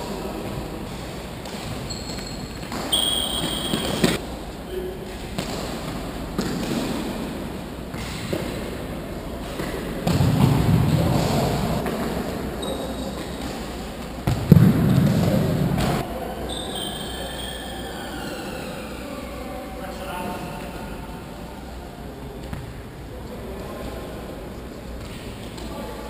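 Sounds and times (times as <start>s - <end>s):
football bouncing on hall floor: 0.0s - 4.3s, 5.0s - 17.8s
trainers squeaking on floor: 1.7s - 4.2s, 12.6s - 13.4s, 16.5s - 18.8s.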